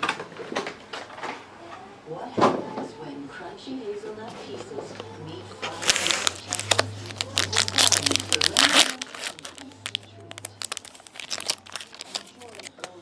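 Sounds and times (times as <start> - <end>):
foil wrapper tearing and crinkling: 5.8 - 13.0.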